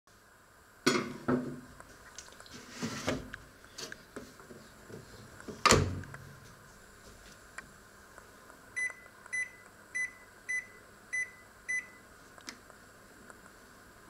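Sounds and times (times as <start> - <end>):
oven door thud: 5.6 - 6.0.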